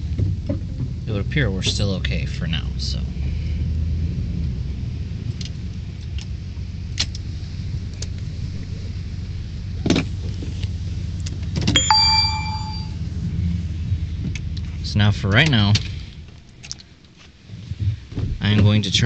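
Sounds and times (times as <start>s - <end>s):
truck engine and road rumble: 0.0s - 19.0s
sharp metallic clang: 11.8s - 13.0s.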